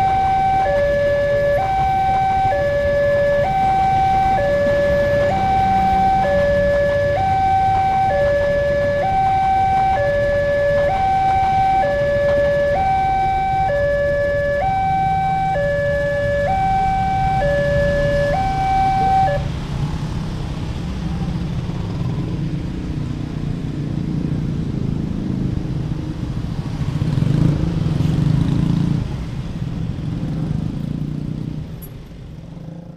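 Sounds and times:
two-tone level crossing siren: 0:00.0 - 0:19.5
passing train rumble: 0:00.0 - 0:32.7
motorcycle and car engines: 0:00.0 - 0:32.9.

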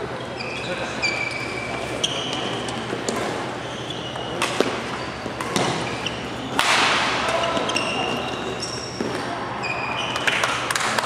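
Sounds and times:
shoes squeaking on court: 0:00.0 - 0:10.5
rackets hitting shuttlecock: 0:02.0 - 0:09.4.

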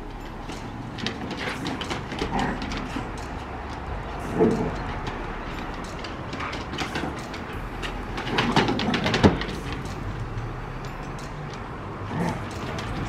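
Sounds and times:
claws scrabbling on wooden boards: 0:00.0 - 0:13.0
dogs growling: 0:00.0 - 0:13.0.

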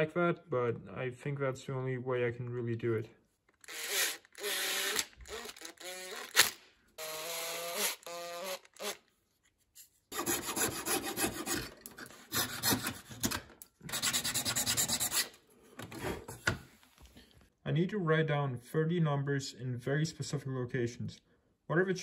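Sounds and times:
hand tool scraping wood: 0:10.1 - 0:16.5.

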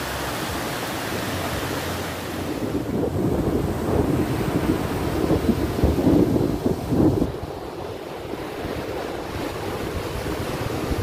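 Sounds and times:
ocean surf breaking: 0:00.0 - 0:11.0
wind buffeting microphone: 0:00.0 - 0:11.0.

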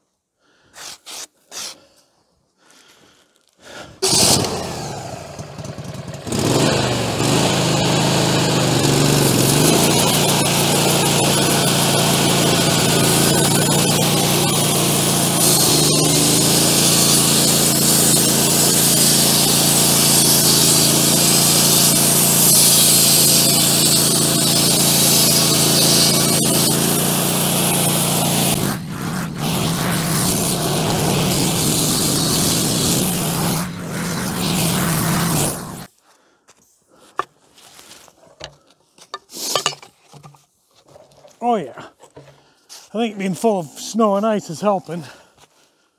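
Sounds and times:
sawmill cutting log: 0:04.0 - 0:35.9.

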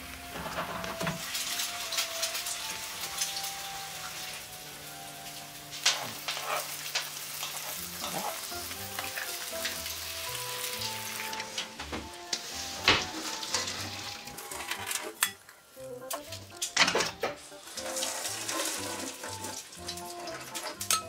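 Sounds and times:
noodles boiling and bubbling: 0:00.0 - 0:21.0
chopsticks scraping pans: 0:00.3 - 0:02.5, 0:05.8 - 0:09.8, 0:10.8 - 0:15.4, 0:16.1 - 0:21.0.

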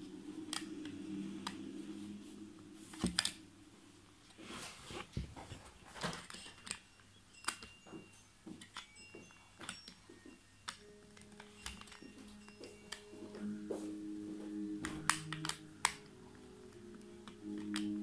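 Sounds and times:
plastic parts clicking and tapping: 0:06.0 - 0:13.1, 0:14.8 - 0:16.1, 0:16.9 - 0:18.0.

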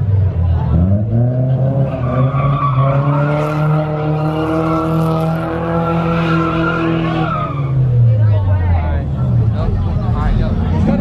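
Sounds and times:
car engine at high revs: 0:00.0 - 0:11.0
tyres squealing on pavement: 0:01.8 - 0:05.0, 0:05.6 - 0:08.3.

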